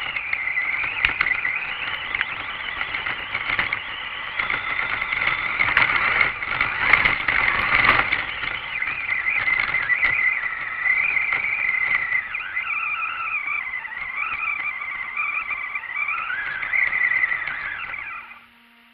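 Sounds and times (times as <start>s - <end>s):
tyres churning through snow: 0.0s - 18.4s
rc truck motor whining: 0.0s - 18.7s.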